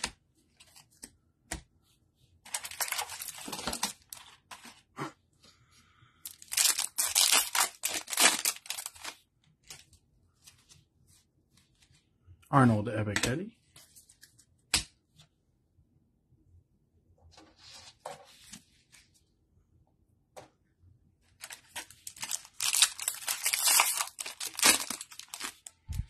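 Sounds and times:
plastic wrapper crinkling and tearing: 2.5 - 4.4, 6.2 - 9.8, 21.4 - 26.0.

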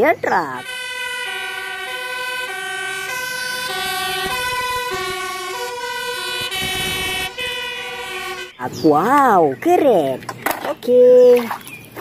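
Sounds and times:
two-tone fire engine siren: 0.5 - 8.8.

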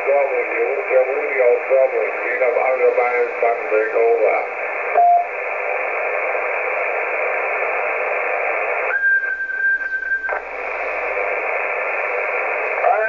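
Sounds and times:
radio static hiss: 0.0 - 13.0
short radio beep: 5.0 - 5.3
steady whistle tone: 8.9 - 10.4.

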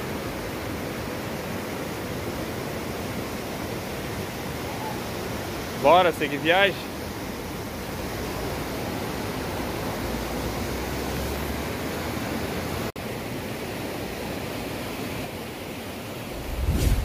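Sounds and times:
river whitewater rushing: 0.0 - 17.0
low rumble: 16.4 - 17.0.

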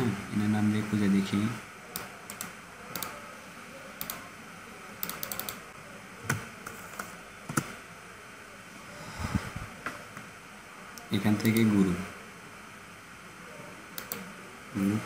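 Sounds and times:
computer mouse clicks: 2.0 - 3.2, 4.0 - 4.2, 5.0 - 5.6, 14.0 - 14.3.

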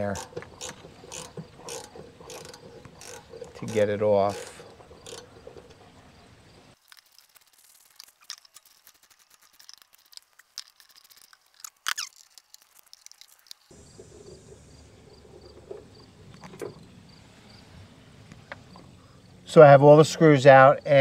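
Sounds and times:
crickets chirping: 0.0 - 7.5, 12.0 - 21.0.

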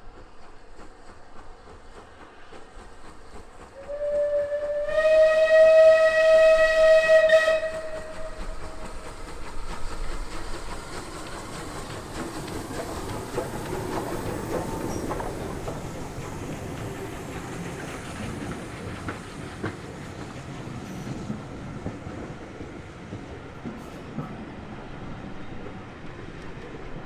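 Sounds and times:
steam hiss: 0.0 - 22.6
steam locomotive whistle: 3.8 - 8.7
wheels clicking on track: 6.5 - 24.0.

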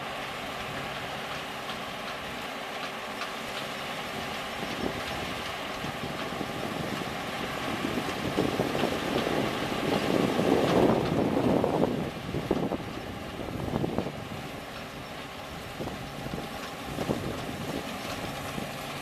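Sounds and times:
combine harvester running: 0.0 - 19.0
wind buffeting microphone: 4.1 - 19.0.

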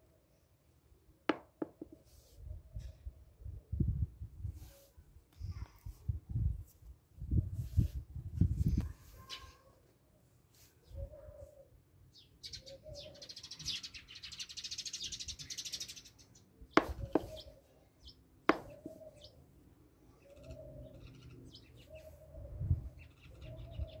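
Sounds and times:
bird chirps and calls: 9.1 - 9.7, 10.8 - 19.4, 20.1 - 24.0.

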